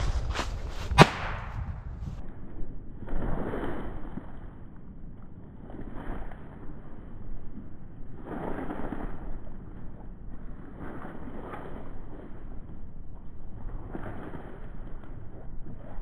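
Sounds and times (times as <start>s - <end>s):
footsteps crunching through dry leaves: 0.0s - 2.0s
stick snapping: 0.4s - 1.6s.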